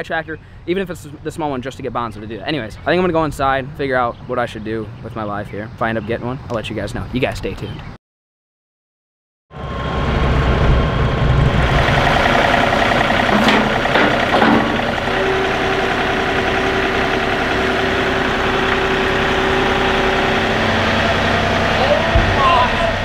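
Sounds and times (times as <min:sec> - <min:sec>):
steady whine: 0:09.6 - 0:23.0
tractor engine running: 0:10.0 - 0:23.0
sharp knocks: 0:13.1 - 0:15.1.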